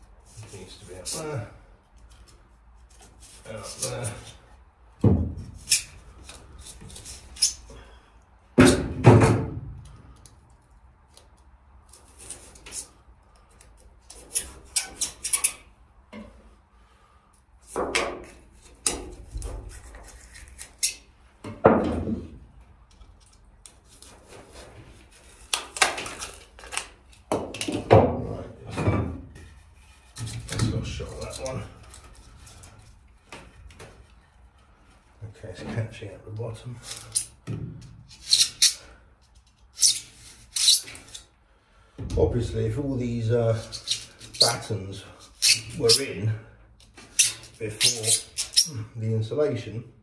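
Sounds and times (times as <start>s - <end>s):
scraping foam insulation: 47.4s - 48.4s.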